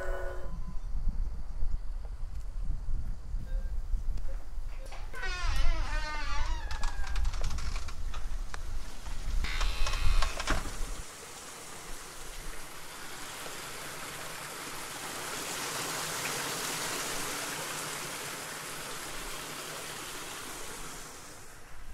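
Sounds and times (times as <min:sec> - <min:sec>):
crackling clicks: 0:06.2 - 0:08.6, 0:09.4 - 0:10.8
rushing hiss: 0:08.9 - 0:21.9.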